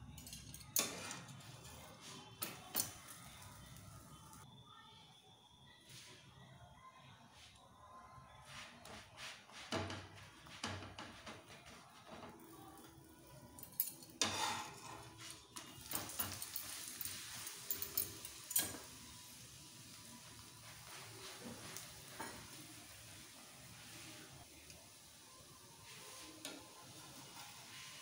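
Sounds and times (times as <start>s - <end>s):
metal spatula scraping griddle: 0.8s - 3.4s, 14.2s - 18.9s, 25.8s - 28.0s
flatbread sizzling in oil: 0.8s - 4.5s, 8.4s - 28.0s.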